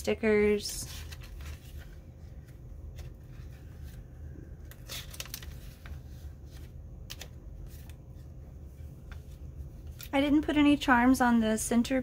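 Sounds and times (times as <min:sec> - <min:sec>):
low steady hum: 0:00.0 - 0:12.0
paper pages turning: 0:00.5 - 0:08.2, 0:09.0 - 0:10.2.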